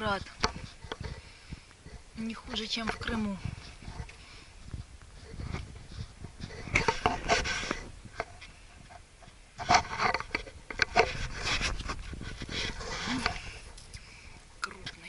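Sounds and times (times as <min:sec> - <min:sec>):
leaves rustling against camera: 0:00.0 - 0:15.0.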